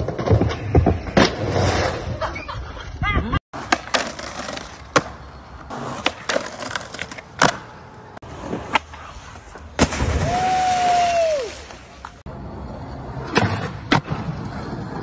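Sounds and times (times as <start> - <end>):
skateboard pops and landing clacks: 0.0 - 2.0, 3.6 - 7.8, 13.2 - 14.4
skateboard wheels rolling: 0.0 - 3.0, 3.6 - 15.0
loud splash into water: 9.8 - 11.7.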